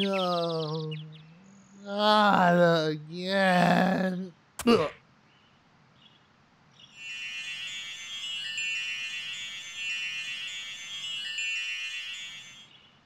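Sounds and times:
shimmering bell-like chimes: 7.0s - 12.9s.

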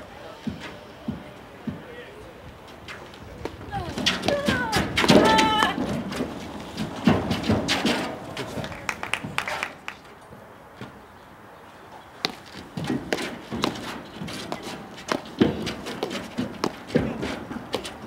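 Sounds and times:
footsteps on court deck: 11.7s - 18.0s.

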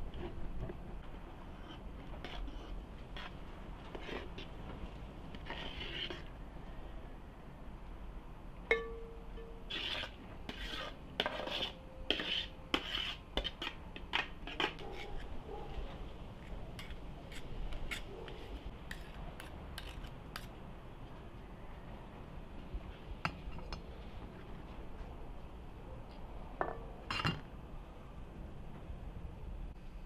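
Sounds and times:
metal spoon scraping a pot: 1.5s - 4.6s, 5.3s - 6.3s, 9.4s - 15.3s, 16.8s - 20.5s.

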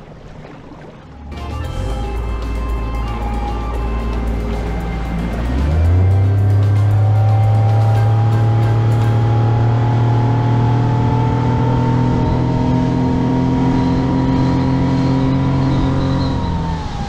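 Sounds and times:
rush of boat wake: 0.0s - 17.0s
outboard motor running: 0.4s - 16.3s.

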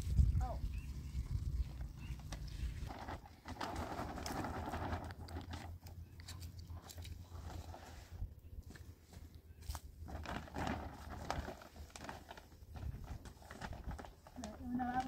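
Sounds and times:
plastic tarp rustling: 2.1s - 8.3s, 9.6s - 15.0s.

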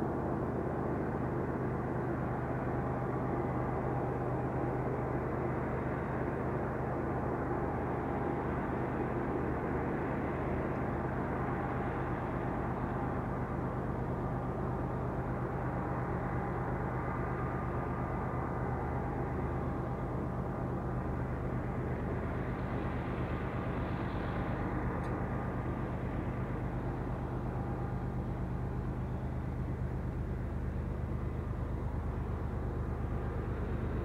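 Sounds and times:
locomotive engine drone: 0.0s - 34.0s.

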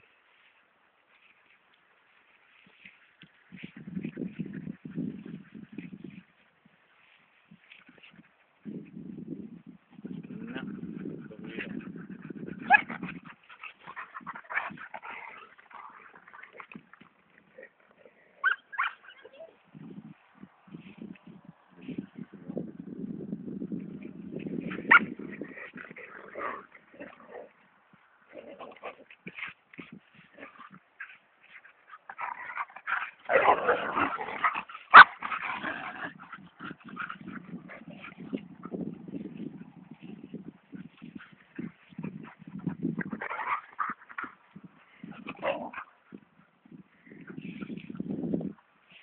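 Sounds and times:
dogs growling and scuffling: 10.0s - 18.9s, 23.7s - 49.0s
high dog cry: 12.6s - 13.2s, 18.4s - 19.6s.

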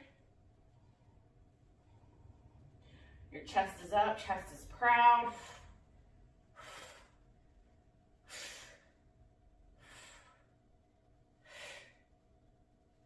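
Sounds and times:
faint steady hum: 0.0s - 13.0s
woman breathing from effort: 1.8s - 3.3s, 9.8s - 10.6s, 11.4s - 12.1s.

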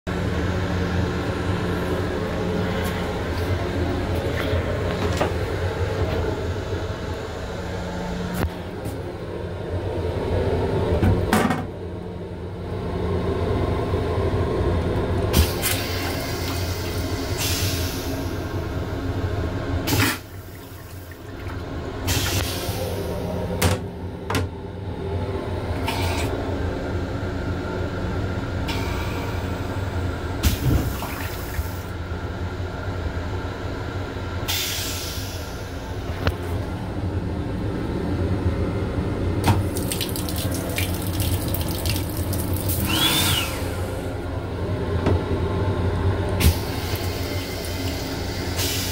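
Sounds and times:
train rumble and hum: 0.1s - 39.8s, 43.6s - 48.9s
toilet flushing: 13.1s - 24.3s, 28.6s - 32.0s, 39.2s - 45.0s, 45.9s - 48.9s.

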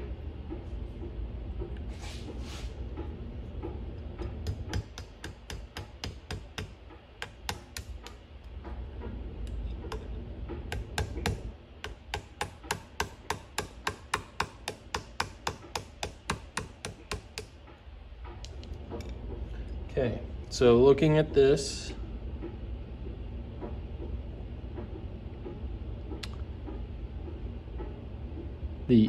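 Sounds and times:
small hammer tapping pin punch: 4.4s - 8.2s, 10.7s - 17.5s.

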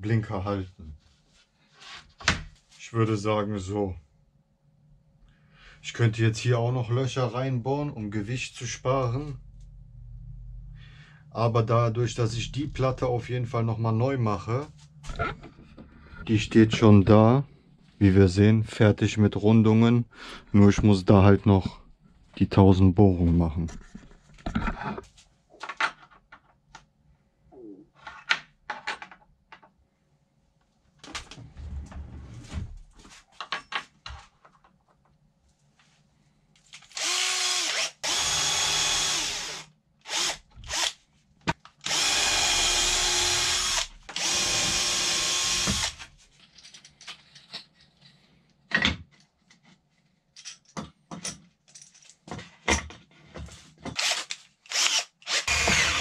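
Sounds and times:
cordless drill running: 36.9s - 41.0s, 41.8s - 46.1s, 54.0s - 56.0s
clicks and knocks of parts handled: 46.4s - 54.7s.

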